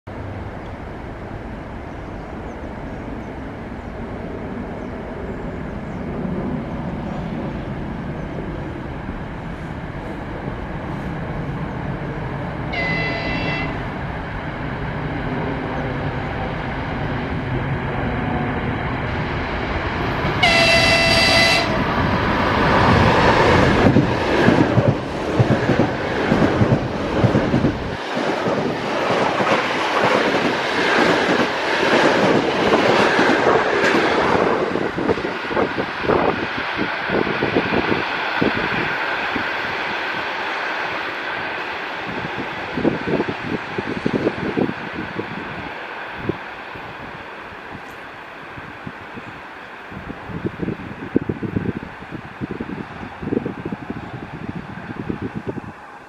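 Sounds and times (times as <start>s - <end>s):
train rumble: 0.1s - 56.0s
high-pitched train horn: 12.7s - 13.9s, 20.4s - 21.9s.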